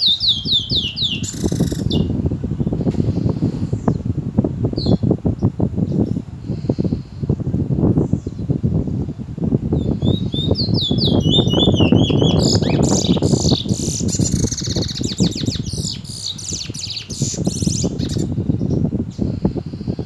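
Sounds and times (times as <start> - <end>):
finch singing whistled trills: 0.0 - 2.1, 9.8 - 19.4.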